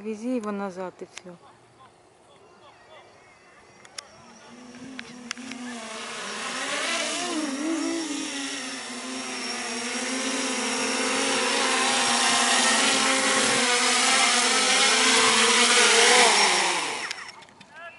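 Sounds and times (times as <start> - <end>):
drone propellers hovering: 3.1 - 17.5.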